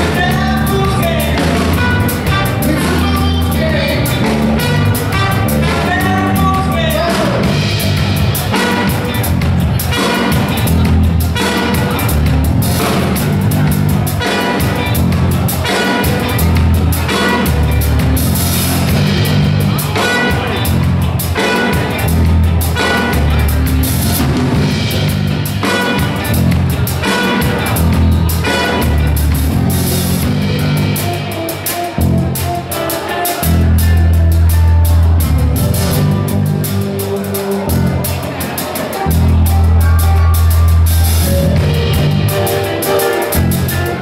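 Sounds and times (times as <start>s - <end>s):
drum kit: 0.0s - 44.0s
electric bass: 0.0s - 44.0s
guitar: 0.0s - 44.0s
trumpet: 1.4s - 7.1s, 8.4s - 13.2s, 14.0s - 19.0s, 19.7s - 24.2s, 25.6s - 29.9s.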